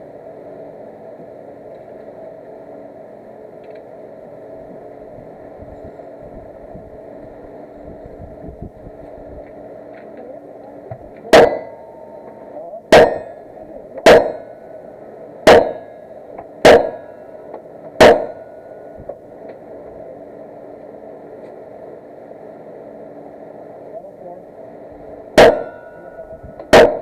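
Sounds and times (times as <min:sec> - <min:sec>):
background hum: 0:00.0 - 0:27.0
gunshots: 0:11.3 - 0:11.7, 0:12.9 - 0:13.4, 0:14.0 - 0:14.4, 0:15.5 - 0:15.9, 0:16.6 - 0:17.1, 0:18.0 - 0:18.4, 0:25.4 - 0:25.8, 0:26.7 - 0:27.0.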